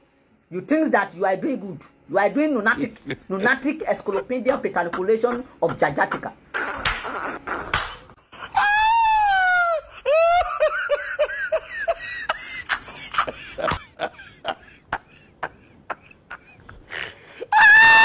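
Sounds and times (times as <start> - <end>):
short falling cries: 8.4 - 10.4, 17.4 - 18.0
high-pitched wailing cry: 8.4 - 10.6, 17.5 - 18.0.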